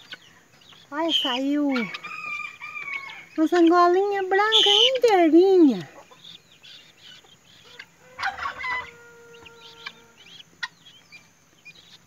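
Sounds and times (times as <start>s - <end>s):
chicks peeping: 0.0s - 12.0s
adult fowl call: 7.6s - 10.4s.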